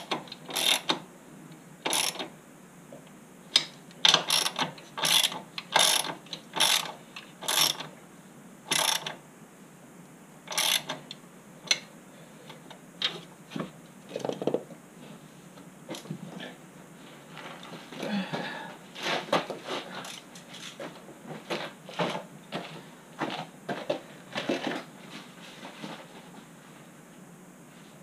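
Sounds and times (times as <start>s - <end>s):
ratchet wrench clicking: 0.5s - 1.0s, 1.9s - 2.2s, 4.1s - 6.9s, 7.5s - 7.8s, 8.7s - 9.1s, 10.5s - 10.9s.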